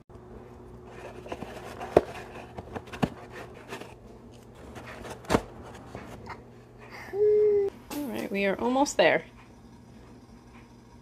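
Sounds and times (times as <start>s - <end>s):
cardboard scraping and rustling: 0.9s - 4.0s.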